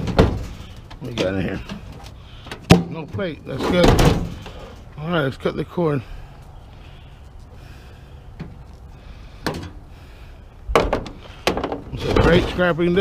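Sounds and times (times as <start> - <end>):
knocks and thuds: 0.0 - 0.6, 3.8 - 4.4, 10.7 - 12.4.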